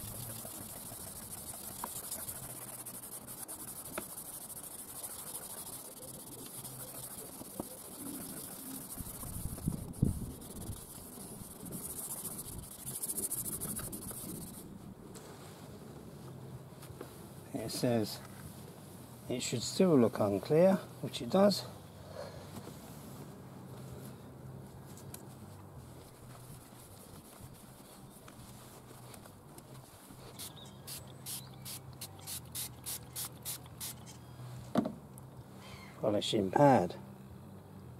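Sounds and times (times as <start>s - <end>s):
cloth wiping: 0.0s - 14.6s
spray bottle hissing: 0.0s - 14.6s, 30.3s - 34.0s
scratchy sanding of plastic: 0.0s - 14.7s.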